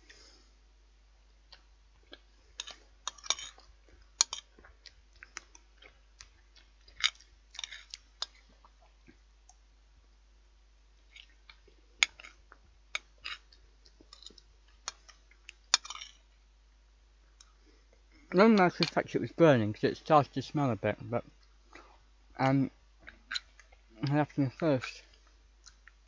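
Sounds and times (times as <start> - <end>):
chewing: 1.5 - 9.6, 11.0 - 16.4, 23.0 - 24.1, 25.0 - 26.0
cutlery scraping: 2.6 - 3.6, 7.0 - 8.4, 15.7 - 16.2
cutlery clicking against a plate: 15.7 - 16.2.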